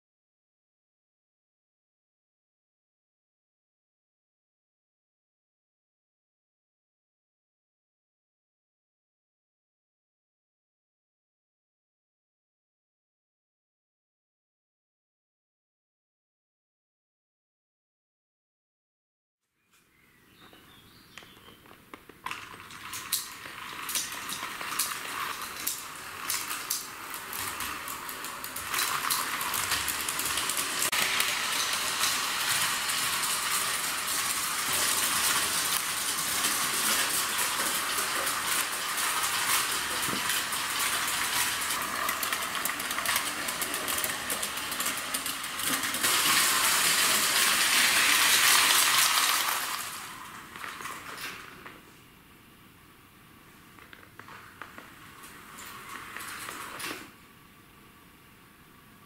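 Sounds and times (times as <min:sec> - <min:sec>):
wheels clicking on rails: 0:21.2 - 0:51.8, 0:53.8 - 0:57.2
model train rolling and whirring: 0:22.2 - 0:51.8, 0:53.8 - 0:57.2.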